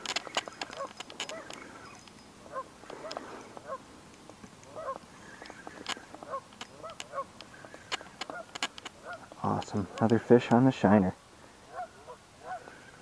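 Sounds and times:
sharp clicks: 0.0s - 10.6s
geese honking: 4.7s - 9.3s.

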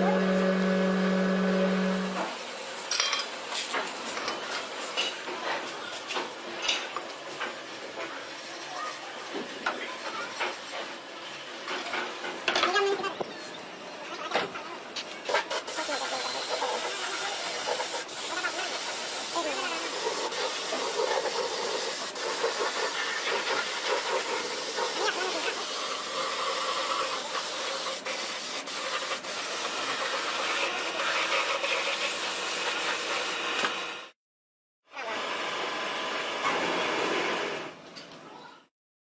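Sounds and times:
paint spray gun hissing: 15.3s - 33.4s.

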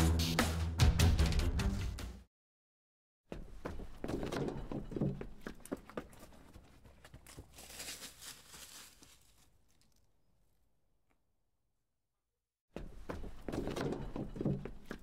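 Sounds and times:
footsteps crunching on leaves: 7.0s - 10.0s.

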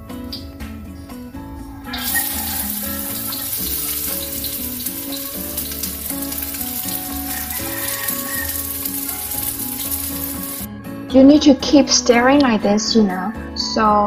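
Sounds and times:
soft background music: 0.0s - 14.0s
onion sizzling in hot oil: 2.0s - 10.7s.

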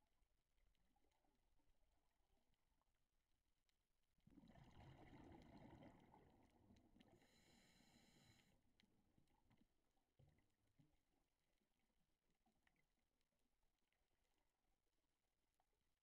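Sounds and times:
muffled diver's exhaled bubbles: 4.3s - 7.7s.

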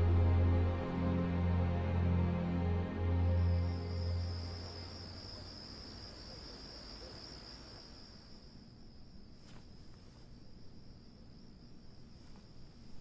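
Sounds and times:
crickets chirring: 3.3s - 13.0s.

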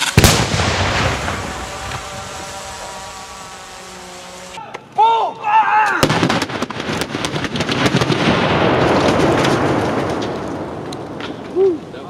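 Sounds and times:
explosion bang: 0.0s - 2.5s
fire crackling: 0.0s - 4.6s, 6.0s - 12.0s
rush of burning fuel: 0.0s - 4.6s.

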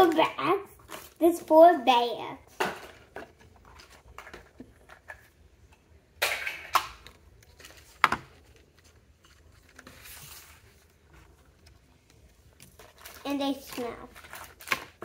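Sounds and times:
plastic bag crinkling: 12.6s - 15.0s.

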